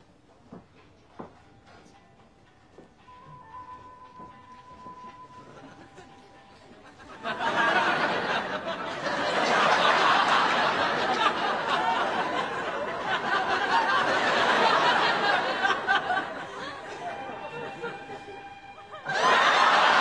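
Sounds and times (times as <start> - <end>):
crowd laughing: 5.6 - 20.0.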